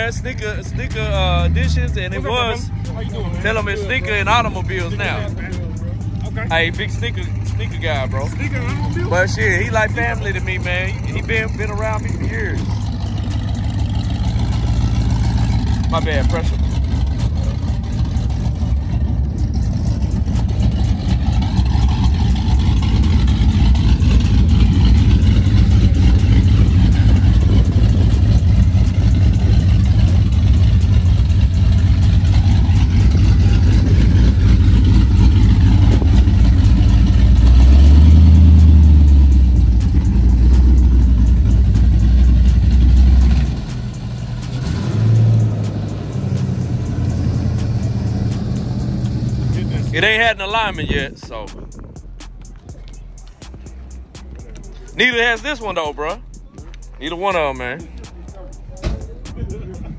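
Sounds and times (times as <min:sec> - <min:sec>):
car engine running: 0:00.0 - 0:59.9.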